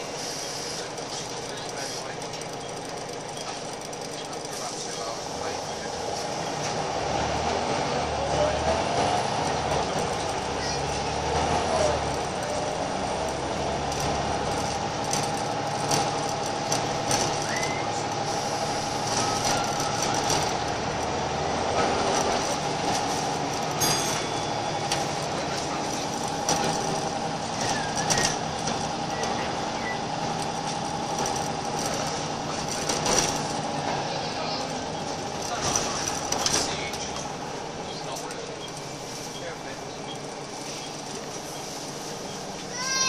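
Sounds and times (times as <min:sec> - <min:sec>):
bus diesel engine whining: 0:00.0 - 0:43.0
bodywork rattles and clicks: 0:01.0 - 0:04.7, 0:11.9 - 0:18.2, 0:18.9 - 0:24.2, 0:24.8 - 0:38.9.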